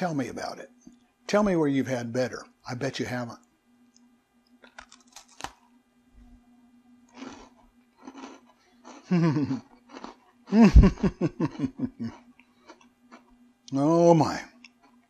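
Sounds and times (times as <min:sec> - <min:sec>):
faint low hum: 0:00.0 - 0:15.0
cookie crunching: 0:04.5 - 0:05.8, 0:07.1 - 0:10.5, 0:11.1 - 0:13.4
person humming mmm: 0:09.0 - 0:09.7.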